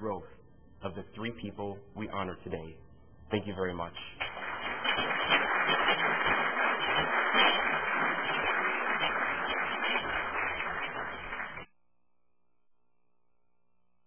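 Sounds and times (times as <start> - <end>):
audience applauding: 4.2 - 11.7.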